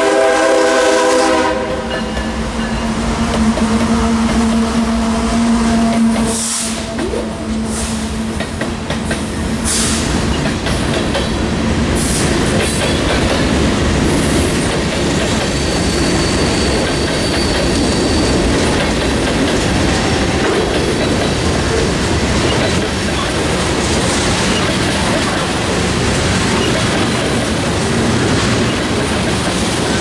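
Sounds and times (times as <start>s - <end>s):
train wheels rumbling on rails: 0.0s - 30.0s
high wheel squeal: 15.2s - 18.8s.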